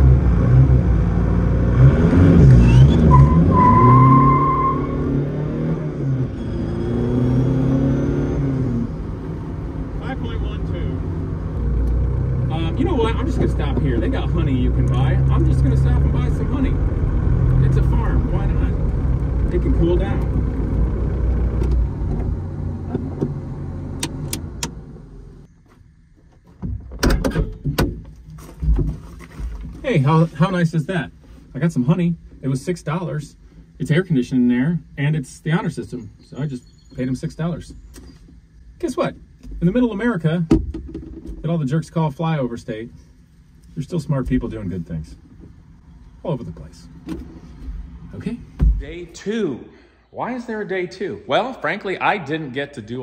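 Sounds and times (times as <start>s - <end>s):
car engine revving: 0.0s - 25.5s
tire squeal: 2.3s - 5.4s, 6.2s - 7.2s.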